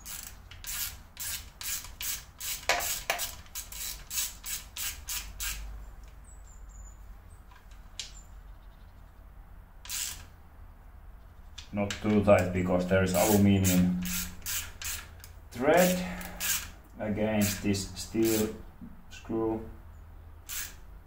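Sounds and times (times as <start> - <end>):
screwdriver turning screw rasping: 0.0 - 5.6, 9.9 - 10.3, 13.1 - 16.8, 17.4 - 18.6, 20.5 - 20.8.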